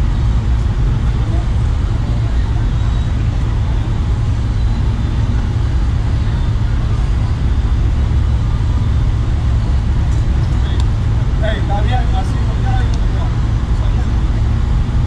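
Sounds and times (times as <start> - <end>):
loud low outdoor rumble: 0.0 - 15.0.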